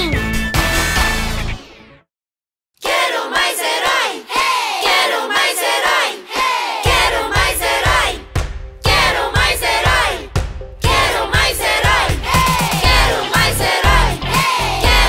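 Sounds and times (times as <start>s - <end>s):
group of voices singing: 2.8s - 15.0s
drum beat: 6.8s - 15.0s.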